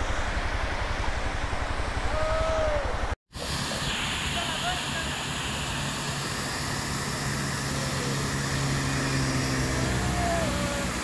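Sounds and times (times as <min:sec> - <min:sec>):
vehicle engine humming: 0:03.4 - 0:11.0.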